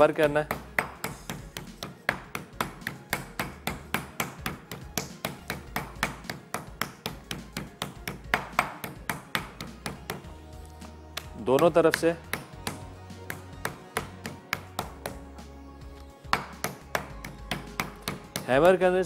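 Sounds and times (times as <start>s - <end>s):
meat hammer pounding meat: 0.2s - 10.3s, 11.5s - 15.2s, 16.3s - 18.8s.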